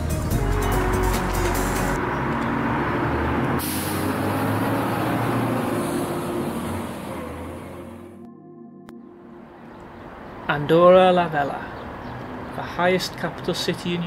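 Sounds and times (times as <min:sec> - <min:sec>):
large vehicle engine humming: 0:00.0 - 0:08.3.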